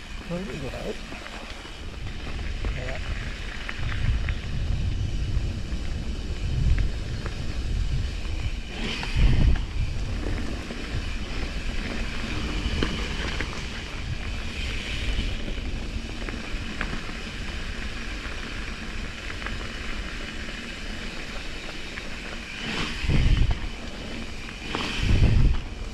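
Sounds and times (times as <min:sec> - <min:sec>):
heavy low rumbles: 0:00.0 - 0:17.2
bike tyres on dirt trail: 0:00.0 - 0:25.9
wind buffeting microphone: 0:00.0 - 0:25.9.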